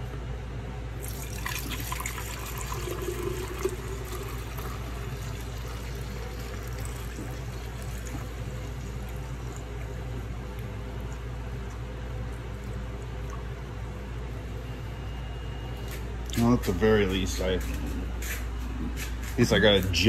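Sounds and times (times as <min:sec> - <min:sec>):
liquid pouring into plastic canister: 0:01.0 - 0:14.3.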